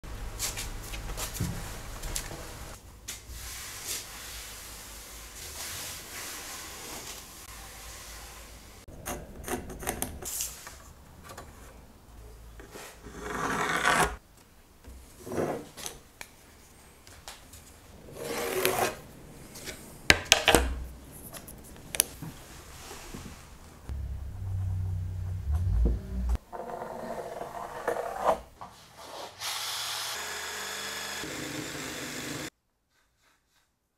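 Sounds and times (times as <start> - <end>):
low hum: 23.9 - 26.4.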